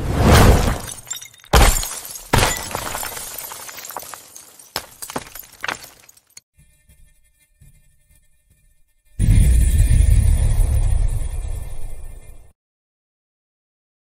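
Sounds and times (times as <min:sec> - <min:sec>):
glass smashing on asphalt: 0:00.5 - 0:06.4
glass shards tinkling: 0:00.9 - 0:06.4.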